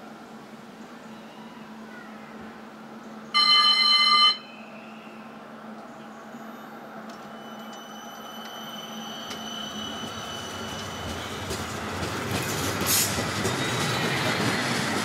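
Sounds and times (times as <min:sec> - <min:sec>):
tram low hum: 0:00.0 - 0:15.0
faint high whining tones: 0:03.1 - 0:11.4
tram electronic warning tone: 0:03.3 - 0:12.2.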